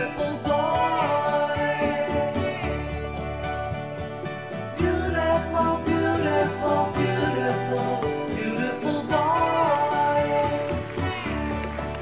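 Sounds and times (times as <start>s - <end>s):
gentle song with guitar: 0.0s - 12.0s.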